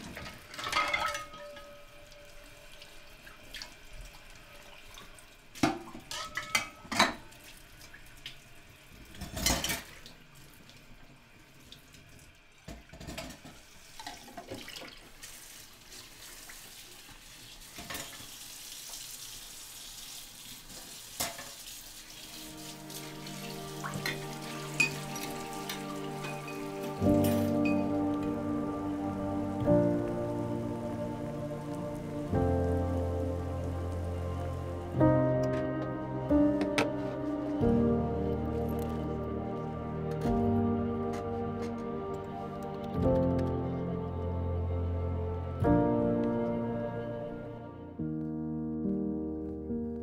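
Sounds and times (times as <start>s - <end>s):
dishes clinking and knocking: 0.2s - 1.8s, 5.7s - 7.3s.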